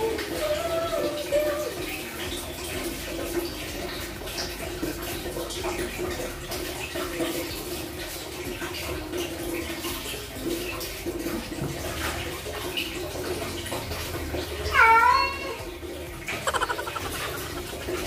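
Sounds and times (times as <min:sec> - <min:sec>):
water splashing while washing cat: 0:00.0 - 0:18.0.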